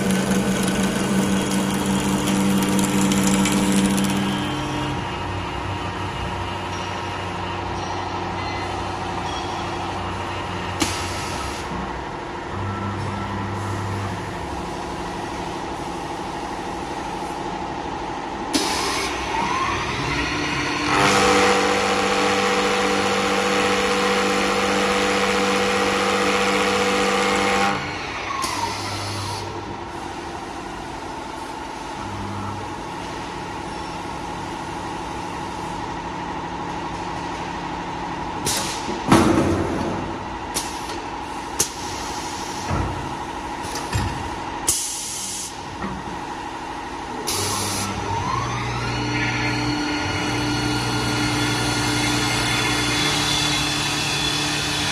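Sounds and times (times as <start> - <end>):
machine knocking: 0.0 - 4.4
lathe motors humming: 0.0 - 6.1, 47.6 - 54.9.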